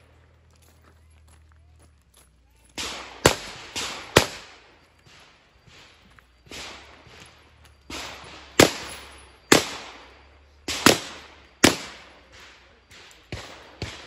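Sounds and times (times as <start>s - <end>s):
handgun shots echoing: 2.7s - 5.2s, 7.9s - 14.0s
fainter gunshots: 2.8s - 5.3s, 7.9s - 14.0s.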